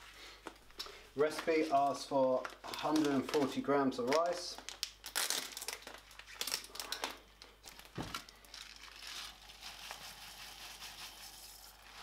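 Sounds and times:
plastic bag crinkling: 0:01.3 - 0:12.0
dry rice pouring into saucepan: 0:08.8 - 0:12.0.

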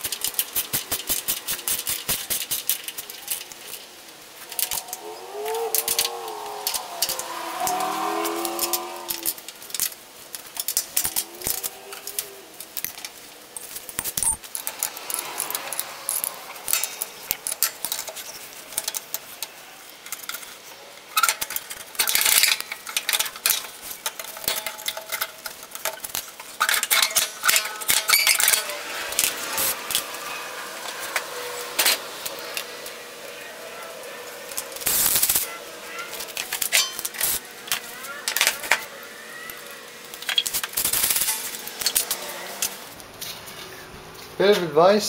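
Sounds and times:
tools clanking on metal frame: 0:36.2 - 0:38.8.

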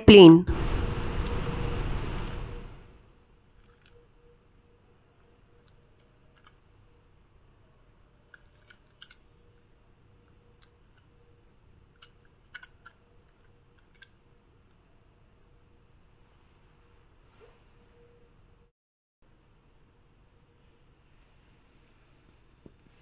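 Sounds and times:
clicks of plastic toy being handled: 0:03.5 - 0:04.0, 0:05.6 - 0:06.8, 0:08.2 - 0:09.3, 0:11.9 - 0:14.8.

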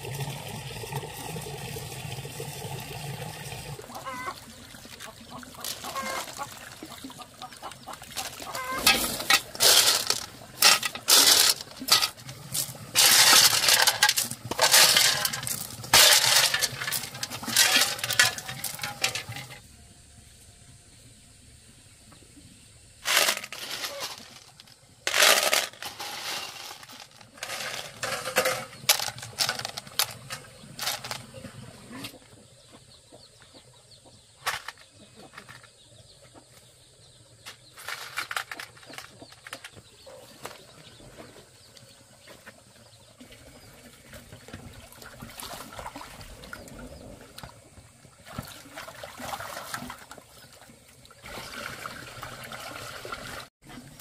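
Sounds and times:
snail shells clattering in metal basin: 0:05.6 - 0:06.8, 0:08.1 - 0:19.6, 0:23.0 - 0:31.4, 0:37.4 - 0:40.0.

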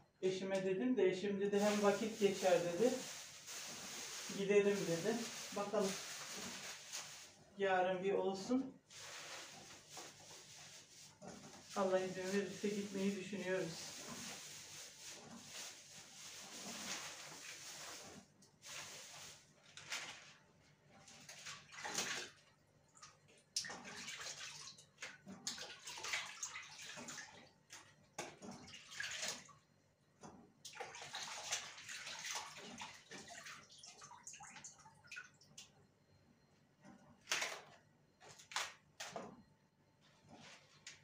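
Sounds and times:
water sloshing in plastic bowl: 0:01.6 - 0:07.5, 0:08.8 - 0:29.6, 0:30.6 - 0:35.7.

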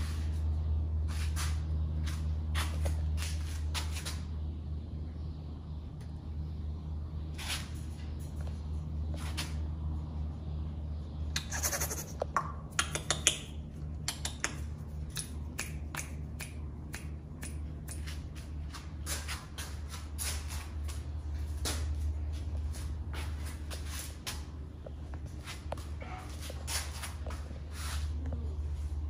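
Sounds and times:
steady low hum: 0:00.0 - 0:29.0
sharp clicks and taps: 0:12.1 - 0:18.4.

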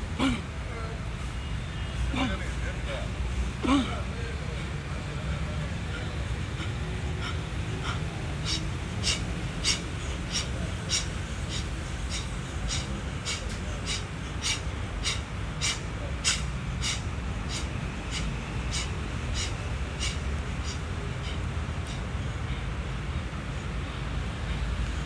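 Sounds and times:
sharp breaths with punches: 0:05.9 - 0:22.6.

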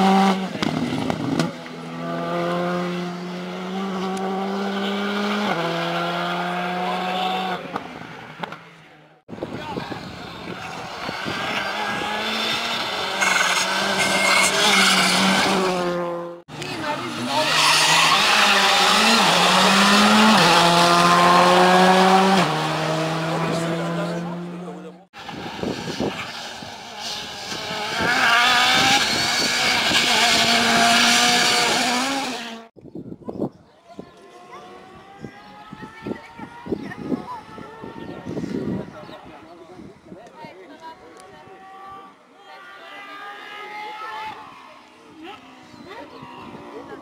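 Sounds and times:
rally car engine approaching: 0:00.0 - 0:32.7.

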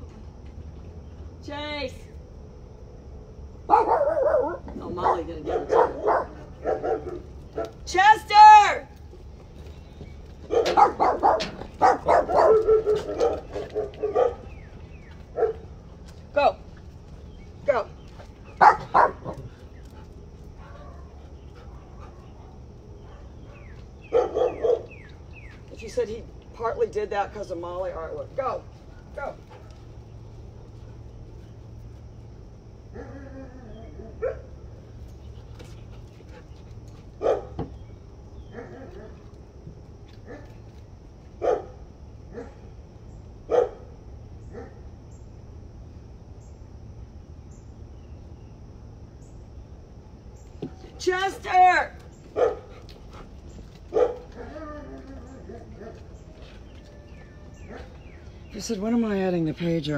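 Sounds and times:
dog barking: 0:03.7 - 0:07.7, 0:10.5 - 0:14.5, 0:15.3 - 0:15.6, 0:18.6 - 0:19.4, 0:23.0 - 0:25.0, 0:34.2 - 0:34.5, 0:37.2 - 0:37.6, 0:41.4 - 0:42.6, 0:43.5 - 0:43.9, 0:52.4 - 0:52.7, 0:53.9 - 0:54.6
dogs whimpering and yipping: 0:54.0 - 0:58.0.

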